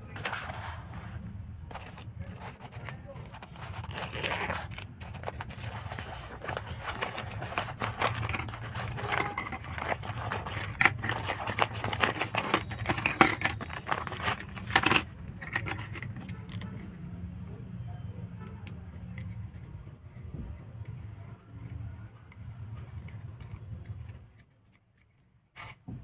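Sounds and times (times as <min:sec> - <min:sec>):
plastic bag crinkling: 0:01.7 - 0:16.8
toy cars clattering on wood: 0:01.7 - 0:16.8.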